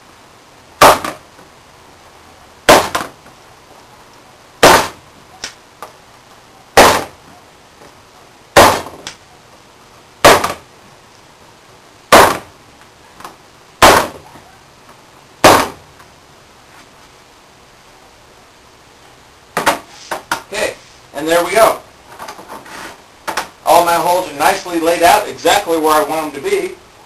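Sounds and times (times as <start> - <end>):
punch striking into wood: 0.8 - 1.2, 2.7 - 3.2, 4.6 - 5.0, 6.8 - 7.2, 8.6 - 9.2, 10.2 - 10.6, 12.1 - 12.5, 13.8 - 14.2, 15.4 - 15.8.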